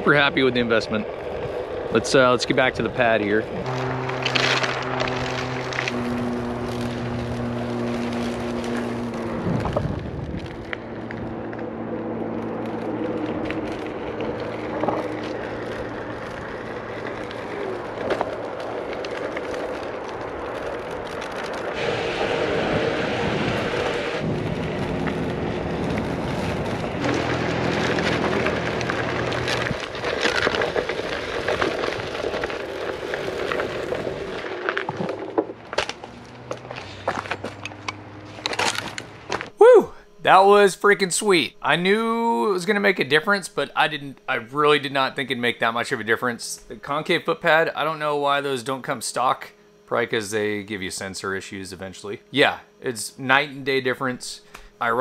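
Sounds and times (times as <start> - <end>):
tyre rolling noise: 0.2 - 39.8
electric motor humming: 0.5 - 47.0.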